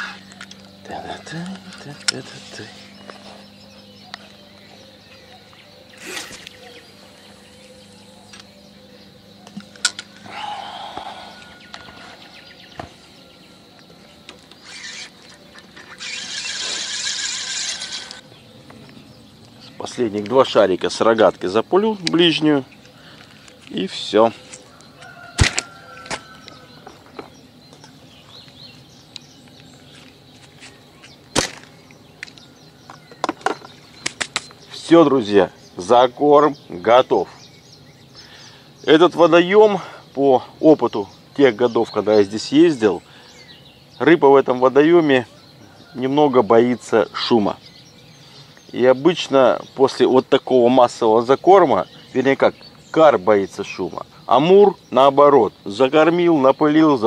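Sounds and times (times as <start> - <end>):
slingshot rubber bands snapping: 31.3 - 32.4.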